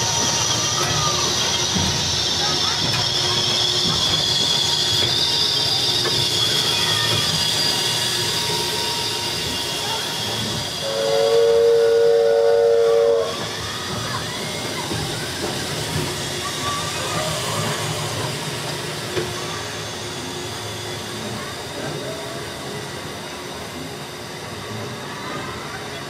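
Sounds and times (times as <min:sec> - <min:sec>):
roller coaster rumbling on track: 0:00.0 - 0:26.0
train whistle chord: 0:10.8 - 0:13.4.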